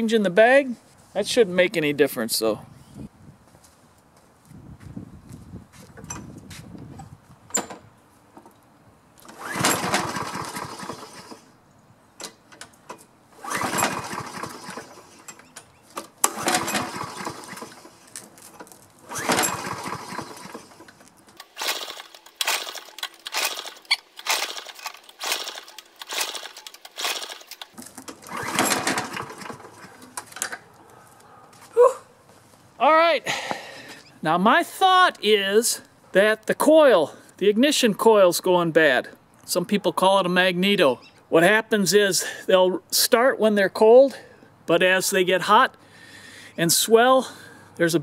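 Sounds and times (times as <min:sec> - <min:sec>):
mower engine cranking: 0:09.2 - 0:11.6, 0:12.2 - 0:30.7
clicks and rattles: 0:12.2 - 0:30.7.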